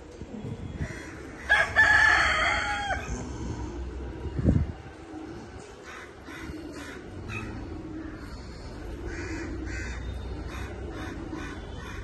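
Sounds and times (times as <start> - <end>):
birds calling: 2.6 - 12.0.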